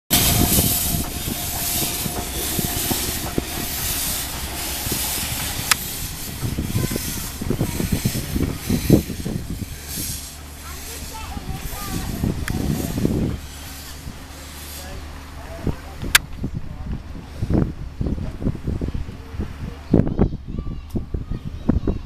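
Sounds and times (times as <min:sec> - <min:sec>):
steam hissing in pulses: 0:00.0 - 0:16.2
knocks from locomotive wheels: 0:00.1 - 0:16.5.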